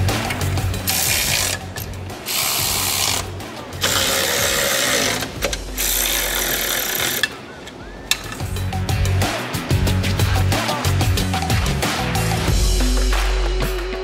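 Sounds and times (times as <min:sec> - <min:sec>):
cordless electric ratchet running: 0:00.8 - 0:07.3.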